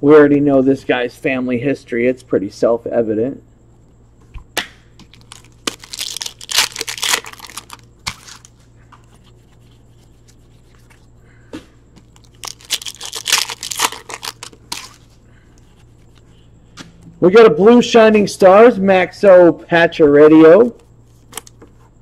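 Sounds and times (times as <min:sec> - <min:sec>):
card pack wrappers tearing: 0:05.1 - 0:08.6, 0:12.0 - 0:15.1, 0:21.2 - 0:21.6.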